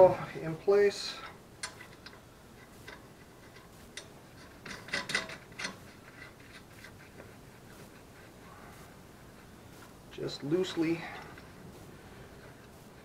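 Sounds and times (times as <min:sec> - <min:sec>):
metal parts clinking and clanking: 0:02.9 - 0:06.6.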